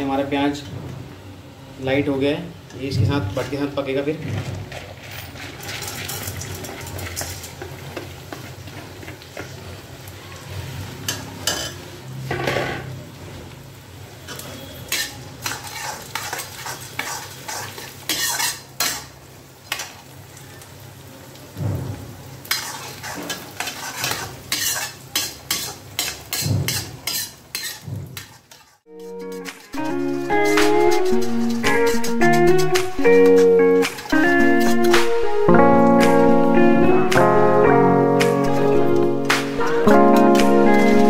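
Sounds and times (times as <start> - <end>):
metal spatula scraping a pan: 4.7 - 7.6, 14.3 - 19.1, 22.4 - 35.0, 38.4 - 41.0
beans sizzling in oil: 5.1 - 12.3, 13.4 - 41.0.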